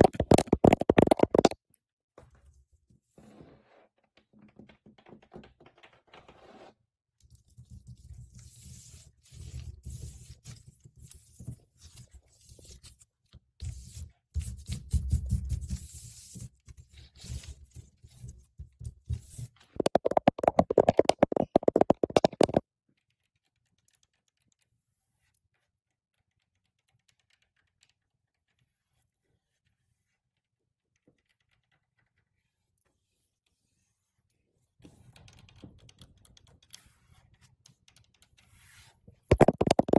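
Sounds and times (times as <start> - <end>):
fast nail tapping: 0.0 - 1.6, 19.8 - 22.6, 39.3 - 39.9.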